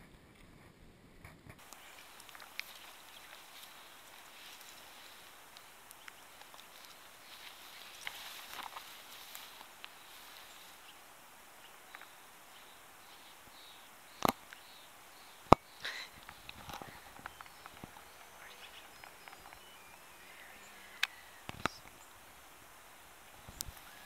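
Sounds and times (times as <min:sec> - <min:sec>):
footsteps through dry grass: 0:01.6 - 0:13.8
sharp clicks: 0:14.2 - 0:14.7, 0:15.4 - 0:22.1.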